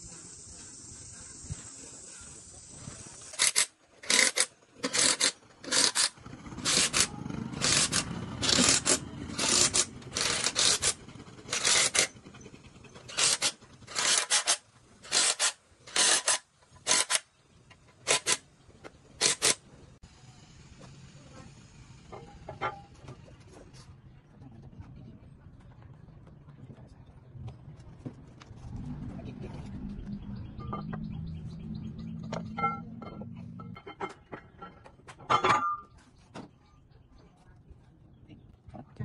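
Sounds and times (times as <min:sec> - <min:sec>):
hand tool scraping a surface: 0:03.4 - 0:12.1.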